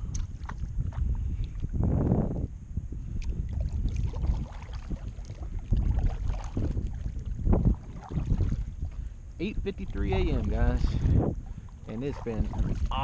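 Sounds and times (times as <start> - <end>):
wind rumble on microphone: 0.0 - 13.0
paddle splashing in water: 3.5 - 9.0, 11.7 - 13.0.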